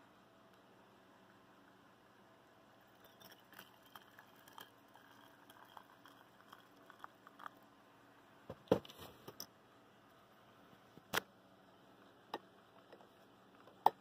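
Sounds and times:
water pouring into metal tumbler: 0:02.9 - 0:07.5.

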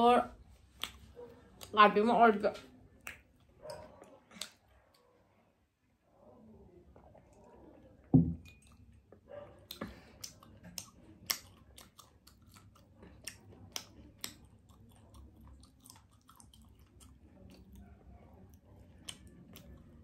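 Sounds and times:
wet mouth clicks and smacks: 0:00.7 - 0:01.0, 0:02.9 - 0:04.7, 0:09.7 - 0:17.7, 0:19.0 - 0:19.8
mug thumping on table: 0:08.2 - 0:08.4.

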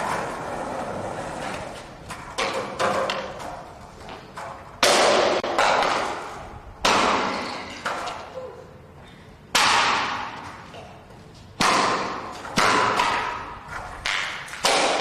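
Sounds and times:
skateboard cracking on pavement: 0:00.0 - 0:06.3.

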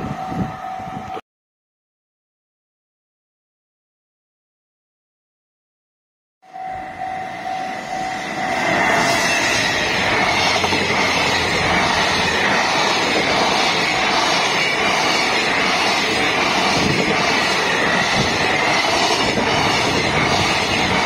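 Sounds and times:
freight train rumbling past: 0:00.0 - 0:01.2, 0:06.5 - 0:21.0
steady tone: 0:06.4 - 0:21.0.

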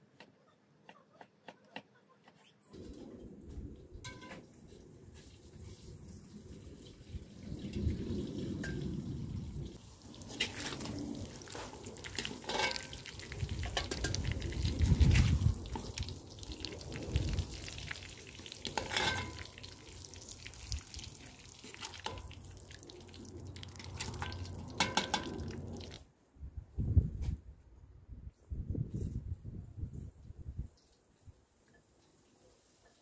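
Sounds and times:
meat sizzling in hot fat: 0:09.7 - 0:26.0
metal ladle clinking and scraping: 0:11.6 - 0:14.3, 0:18.7 - 0:19.7.

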